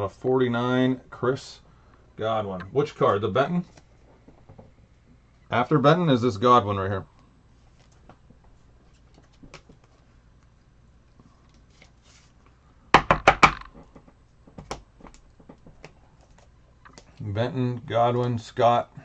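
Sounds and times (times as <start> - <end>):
cards tapping and rustling: 7.7 - 10.1, 13.0 - 17.2.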